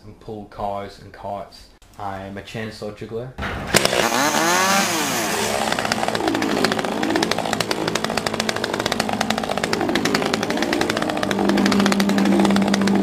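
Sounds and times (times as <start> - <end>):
chainsaw engines revving: 3.7 - 13.0.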